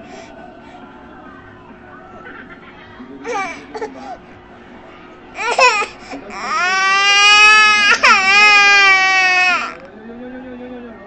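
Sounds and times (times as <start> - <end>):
toddler crying: 5.4 - 9.8.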